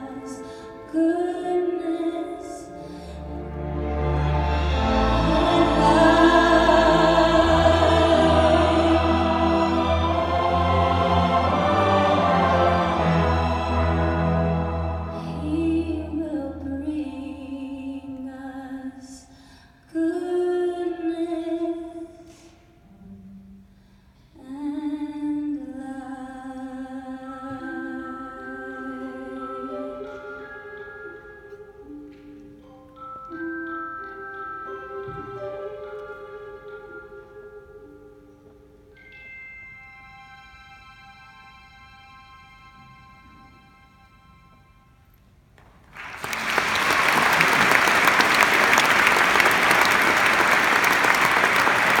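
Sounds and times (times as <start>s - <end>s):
orchestra playing: 0.0s - 17.9s, 27.0s - 38.2s, 39.0s - 45.2s, 46.0s - 52.0s
wordless singing: 4.6s - 19.3s
audience applauding: 45.8s - 52.0s.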